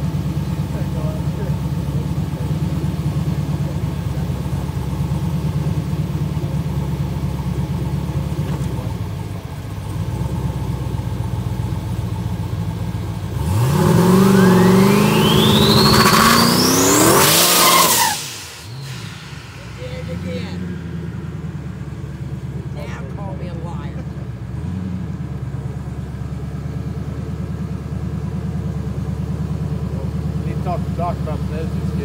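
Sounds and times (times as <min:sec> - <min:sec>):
car engine idling and revving: 0:00.0 - 0:32.0
turbo whistle: 0:14.0 - 0:19.2.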